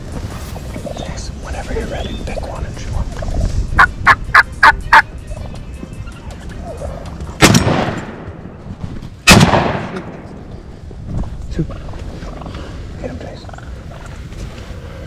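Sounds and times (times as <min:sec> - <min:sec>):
turkey calls: 0:01.7 - 0:07.2, 0:13.4 - 0:14.3
shotgun blasts: 0:07.4 - 0:08.4, 0:09.2 - 0:10.3.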